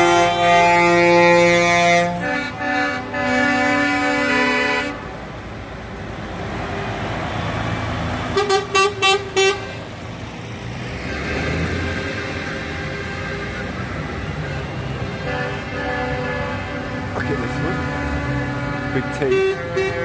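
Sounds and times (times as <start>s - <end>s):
lorry horn blasts: 0.0s - 5.0s, 8.4s - 9.8s, 14.4s - 20.0s
passing lorry engines: 0.0s - 20.0s.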